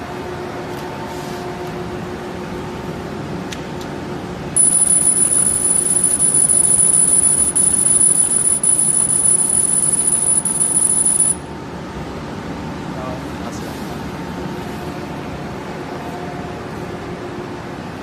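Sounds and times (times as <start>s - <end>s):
cooling fans humming: 0.0s - 18.0s
laser high-pitched whine: 4.6s - 11.4s.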